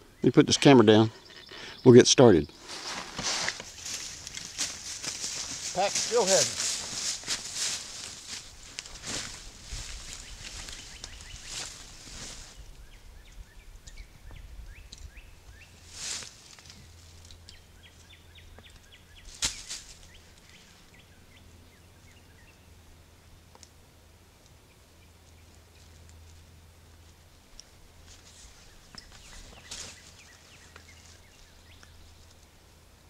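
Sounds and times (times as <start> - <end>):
backpack fabric rustling: 2.6 - 9.9
rustling of dry leaves: 2.6 - 13.0, 15.0 - 18.3, 19.1 - 21.1, 25.2 - 33.0.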